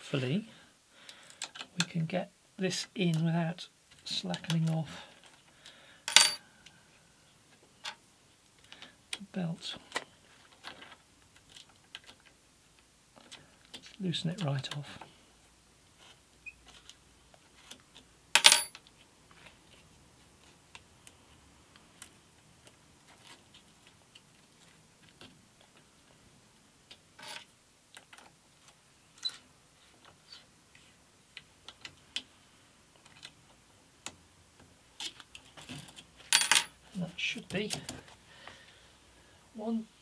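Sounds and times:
hex key clattering on metal table: 0:06.1 - 0:06.4, 0:18.4 - 0:18.8, 0:36.4 - 0:36.7.

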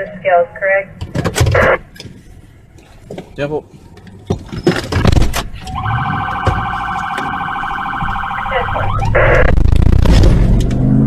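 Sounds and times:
warbling police siren: 0:05.6 - 0:09.6
harsh siren blast: 0:05.7 - 0:09.9
car engine accelerating: 0:08.8 - 0:11.0.

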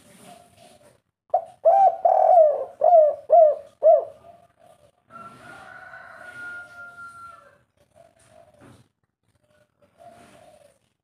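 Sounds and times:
dove cooing: 0:00.2 - 0:05.6, 0:07.8 - 0:08.8, 0:09.5 - 0:11.0.

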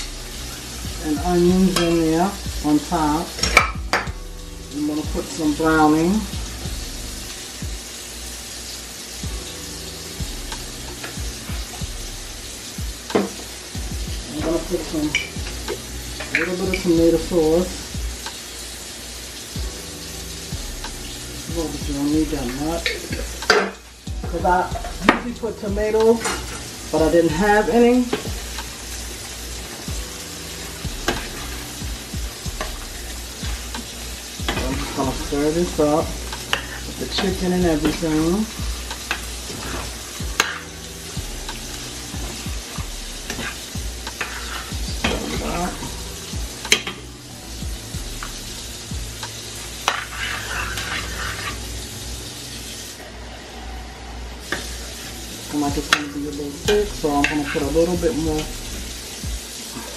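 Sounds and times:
stew sizzling in a skillet: 0:00.0 - 0:59.9
spoon scraping a pan: 0:32.6 - 0:40.8, 0:43.2 - 0:45.9, 0:49.3 - 0:51.8, 0:55.8 - 0:58.5
metal spoon stirring: 0:43.3 - 0:45.8, 0:49.8 - 0:51.7.

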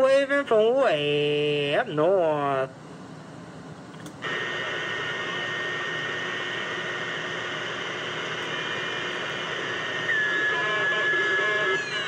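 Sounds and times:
radio static hiss: 0:04.2 - 0:12.0
steady high whistle: 0:09.9 - 0:12.0.

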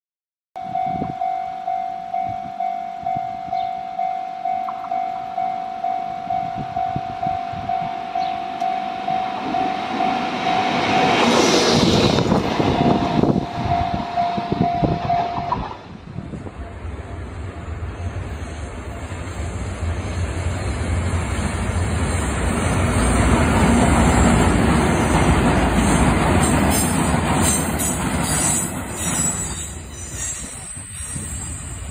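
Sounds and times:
level crossing bell ringing: 0:00.6 - 0:11.2.

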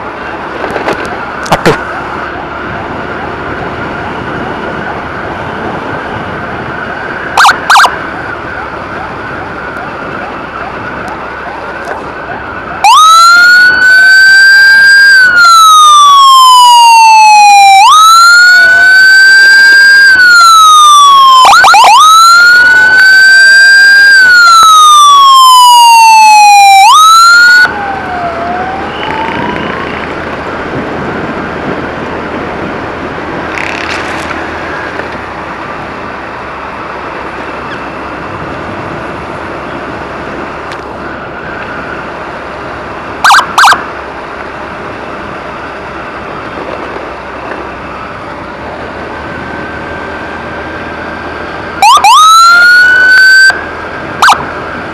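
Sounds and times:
motorcycle riding: 0:00.0 - 0:54.9
electronic emergency siren wailing: 0:05.9 - 0:30.4, 0:43.2 - 0:44.0, 0:49.2 - 0:54.9.

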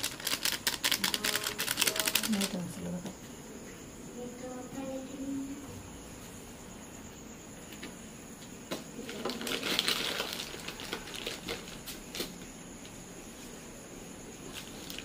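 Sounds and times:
plastic packet rustling: 0:00.0 - 0:02.9, 0:09.1 - 0:12.2.

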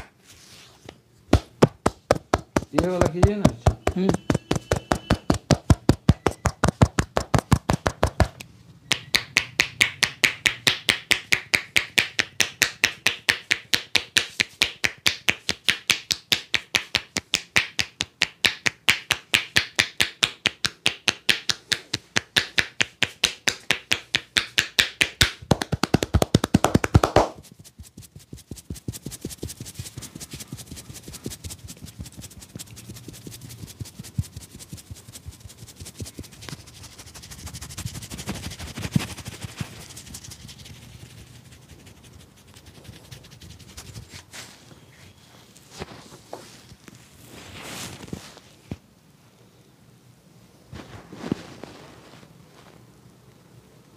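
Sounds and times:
hands slapping a head rhythmically: 0:01.3 - 0:44.0
fingers rustling through hair: 0:01.6 - 0:48.8, 0:50.7 - 0:52.9.

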